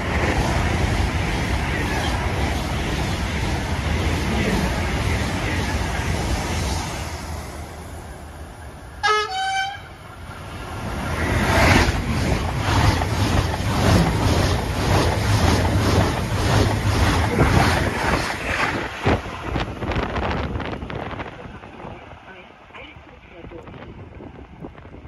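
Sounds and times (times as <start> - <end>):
train rushing past: 0.0 - 25.0
two-note train horn: 9.0 - 10.0.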